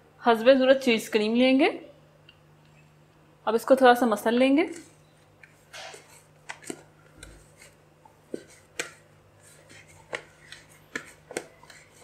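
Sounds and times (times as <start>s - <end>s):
dough kneaded in plastic bowl: 4.0s - 12.0s.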